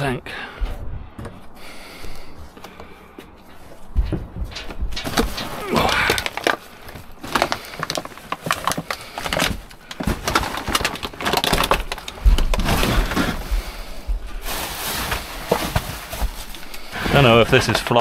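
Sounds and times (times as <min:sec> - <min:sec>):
heavy low thumps: 0:00.5 - 0:02.4, 0:03.8 - 0:06.2, 0:12.2 - 0:14.4
scrap clattering in a dumpster: 0:04.0 - 0:18.0.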